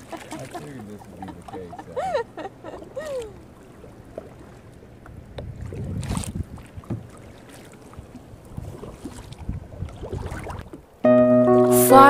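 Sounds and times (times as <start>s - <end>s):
laugh-like vocal cry: 0.0s - 3.4s
wind buffeting microphone: 0.0s - 11.0s
paddle blades splashing water: 0.0s - 12.0s.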